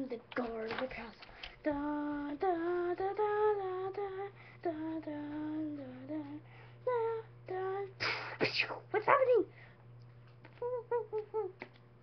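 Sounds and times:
child singing wordless tune: 0:00.0 - 0:08.6.

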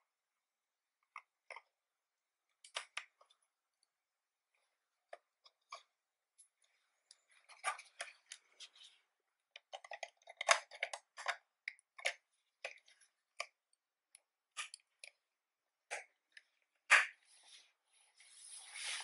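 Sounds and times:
handling scrapes: 0:17.2 - 0:19.0.

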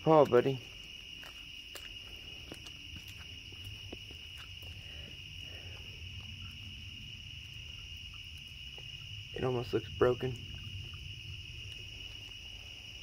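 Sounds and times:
crickets trilling: 0:00.0 - 0:13.0.

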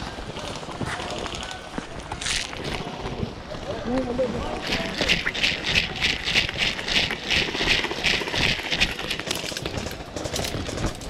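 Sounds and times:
gear rattling rhythmically: 0:04.7 - 0:11.0.

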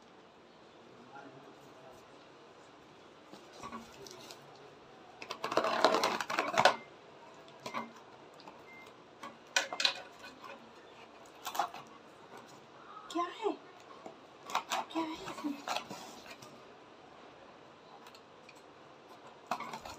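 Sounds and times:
scissors cutting packing tape: 0:14.5 - 0:16.4.

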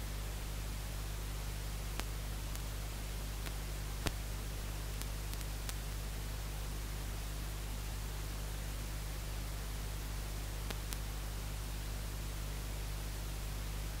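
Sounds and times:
static hiss: 0:00.0 - 0:14.0
faint clicks: 0:02.0 - 0:02.7, 0:03.4 - 0:04.2, 0:05.0 - 0:05.9, 0:10.6 - 0:11.1.

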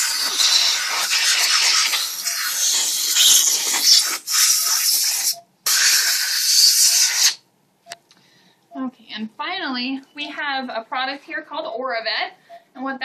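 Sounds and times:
compressed air hissing: 0:00.0 - 0:07.4.

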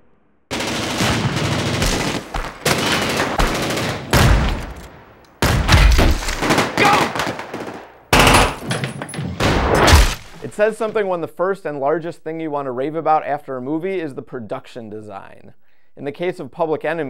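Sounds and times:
rapid automatic gunfire: 0:00.5 - 0:04.6, 0:06.4 - 0:08.6.

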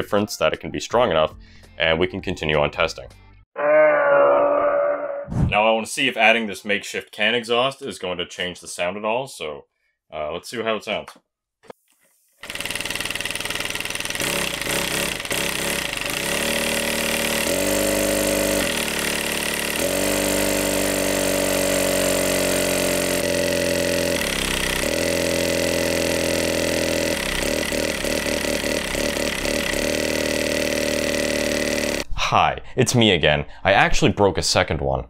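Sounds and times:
small air-powered engine running: 0:12.4 - 0:32.0.

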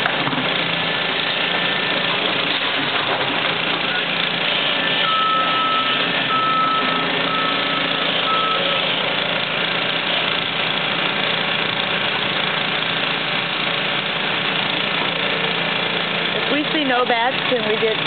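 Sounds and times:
excavator diesel engine running: 0:00.0 - 0:18.0
reversing alarm beeping: 0:04.8 - 0:08.9.

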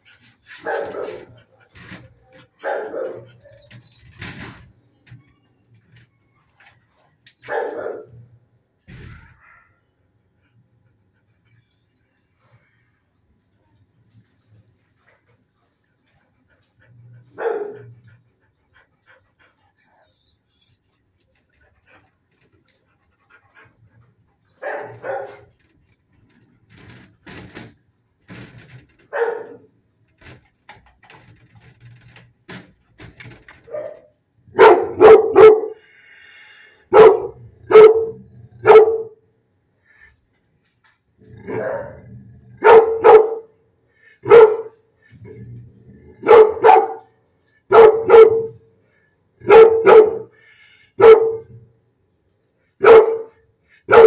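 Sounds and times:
dog barking: 0:02.6 - 0:03.3, 0:07.5 - 0:08.1, 0:17.4 - 0:17.9, 0:24.6 - 0:25.5, 0:29.1 - 0:29.6, 0:33.7 - 0:35.8, 0:36.9 - 0:39.2, 0:41.5 - 0:42.0, 0:42.6 - 0:43.5, 0:44.2 - 0:44.8, 0:46.2 - 0:47.1, 0:47.7 - 0:48.6, 0:49.4 - 0:50.3, 0:51.0 - 0:51.5, 0:52.8 - 0:54.0.

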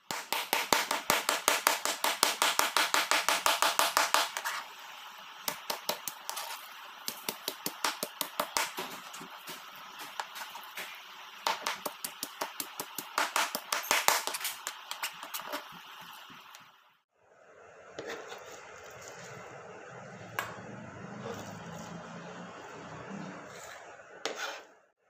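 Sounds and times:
knife chopping on cutting board: 0:07.1 - 0:09.2, 0:10.0 - 0:15.6
scraping meat into steel bowl: 0:23.5 - 0:24.8.

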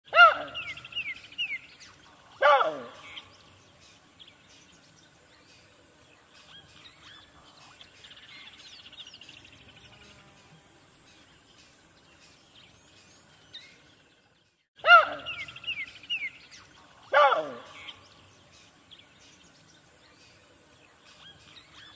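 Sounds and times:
loud animal call: 0:00.1 - 0:00.8, 0:02.4 - 0:03.3, 0:14.8 - 0:15.8, 0:17.1 - 0:18.0
birds chirping: 0:00.1 - 0:21.9.

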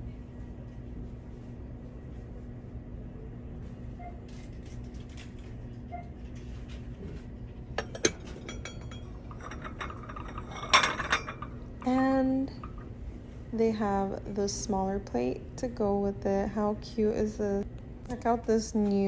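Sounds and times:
low hum: 0:00.0 - 0:19.0
ceramic dishes clinking: 0:07.8 - 0:11.8.

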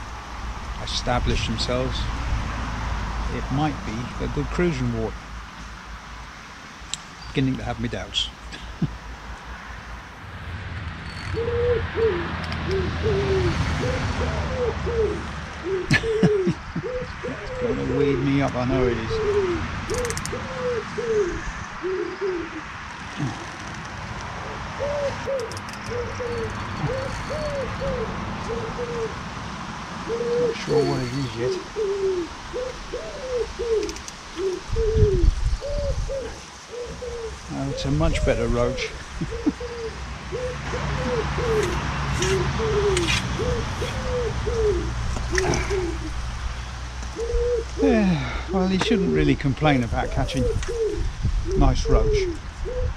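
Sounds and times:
pigeon cooing: 0:11.3 - 0:29.2, 0:30.0 - 0:46.2, 0:47.1 - 0:52.9.

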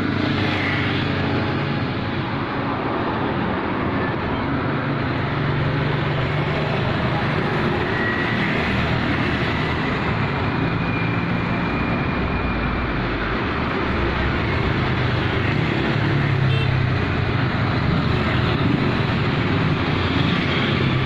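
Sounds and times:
road traffic passing: 0:00.0 - 0:21.0.

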